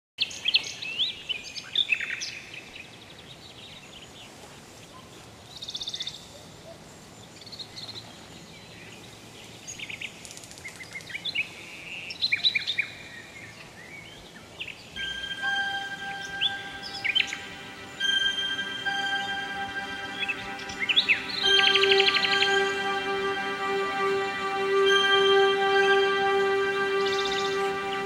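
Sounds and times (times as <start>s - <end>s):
wild birds singing and calling: 0.2s - 23.4s
steady background hiss: 0.2s - 28.0s
bird trill: 15.0s - 28.0s.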